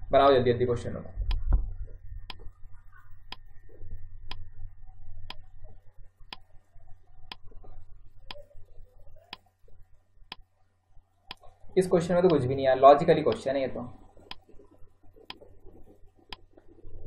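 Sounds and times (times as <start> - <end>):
timer ticking: 12.2 - 12.6, 13.3 - 13.5.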